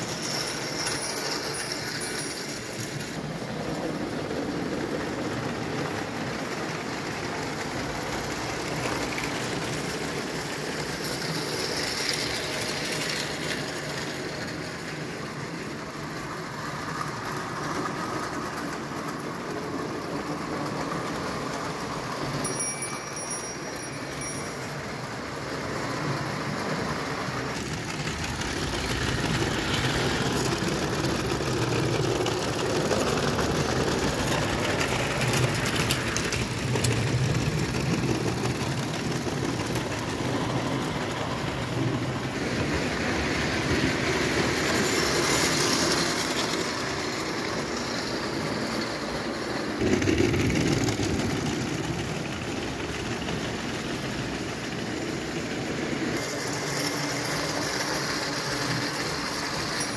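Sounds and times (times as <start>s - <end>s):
model train wheels rattling: 0.0s - 59.9s.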